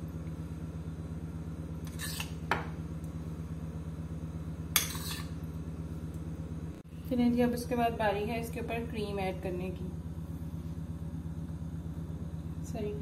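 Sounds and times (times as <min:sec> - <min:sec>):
steady low hum: 0:00.0 - 0:13.0
metal spoon clinking on dishes: 0:04.7 - 0:05.4.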